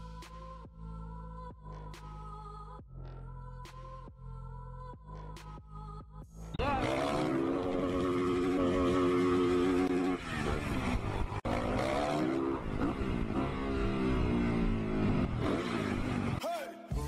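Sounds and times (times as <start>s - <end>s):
dirt bike engine revving: 6.6s - 16.4s.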